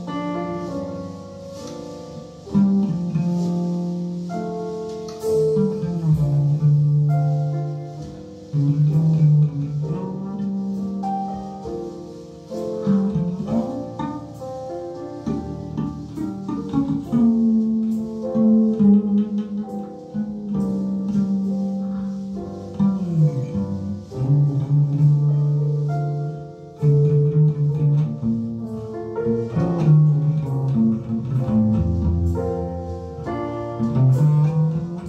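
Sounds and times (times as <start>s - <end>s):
bass line: 15.2s - 35.0s.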